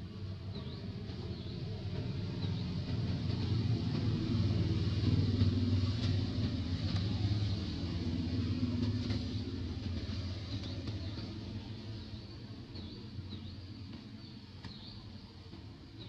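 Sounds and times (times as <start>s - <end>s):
vehicle engine rumble: 0.0s - 16.0s.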